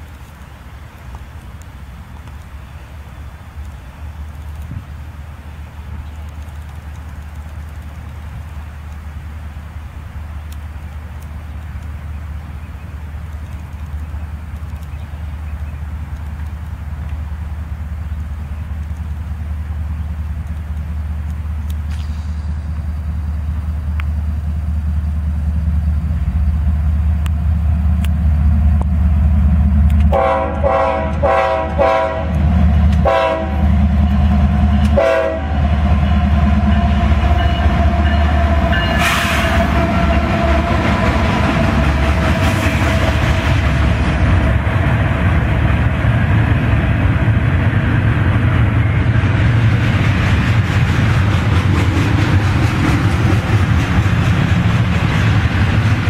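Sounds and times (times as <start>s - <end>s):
diesel locomotive engine rumble: 0.0s - 56.0s
train wheels rolling and clattering: 6.0s - 56.0s
locomotive air horn blasts: 30.1s - 32.4s, 33.0s - 33.8s, 34.8s - 40.9s.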